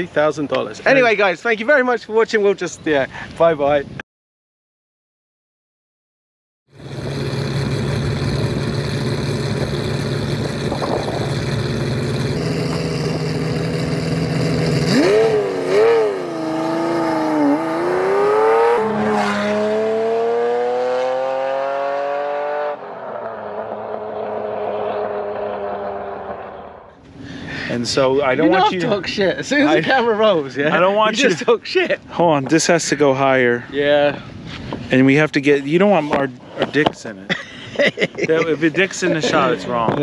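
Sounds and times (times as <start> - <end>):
sports car engine revving: 6.8 - 27.0.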